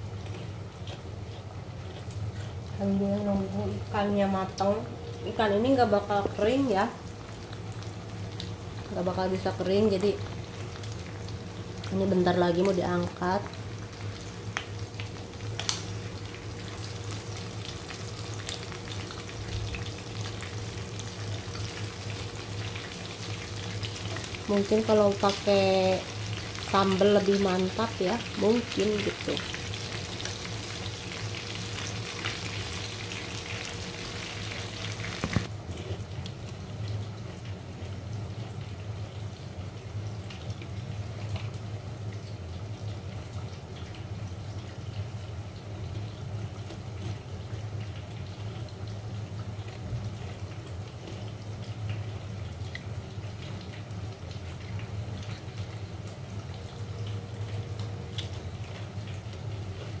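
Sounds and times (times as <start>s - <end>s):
steady low hum: 0.0s - 60.0s
fish sizzling in hot oil: 13.0s - 35.5s.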